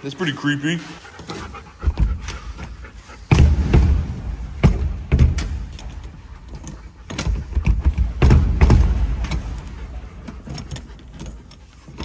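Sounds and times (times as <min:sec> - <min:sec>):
door thumping against frame: 0:03.3 - 0:05.9, 0:07.1 - 0:09.9.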